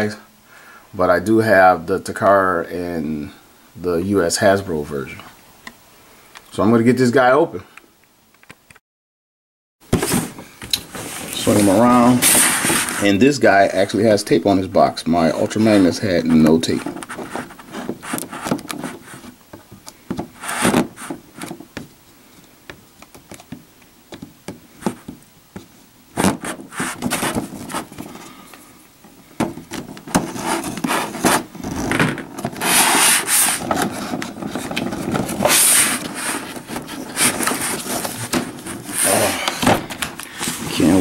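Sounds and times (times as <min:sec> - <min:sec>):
cardboard rubbing and scraping: 0:09.9 - 0:13.3, 0:15.4 - 0:21.8, 0:24.5 - 0:28.3, 0:29.4 - 0:41.0
taps and knocks on cardboard: 0:22.7 - 0:27.9.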